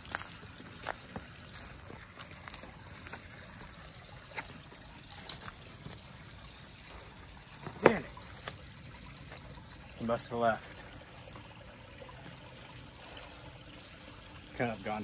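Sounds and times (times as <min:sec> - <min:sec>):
footsteps on stones: 0:00.0 - 0:06.2
creek trickling: 0:00.0 - 0:15.0.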